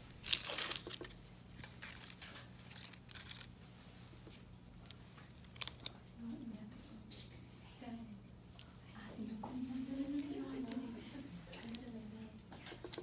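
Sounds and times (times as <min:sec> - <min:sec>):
paper wrapper tearing and rustling: 0:00.0 - 0:03.6, 0:04.8 - 0:06.1.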